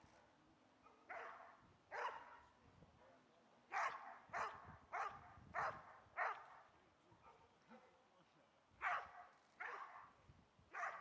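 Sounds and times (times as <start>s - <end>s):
dog barking: 0.8s - 2.4s, 3.7s - 6.5s, 8.8s - 10.1s, 10.7s - 11.0s.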